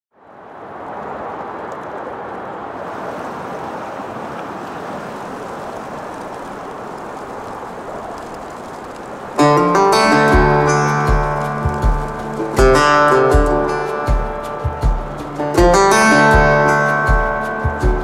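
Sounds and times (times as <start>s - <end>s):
steady rushing noise: 0.1s - 18.0s
acoustic guitar music: 9.4s - 18.0s.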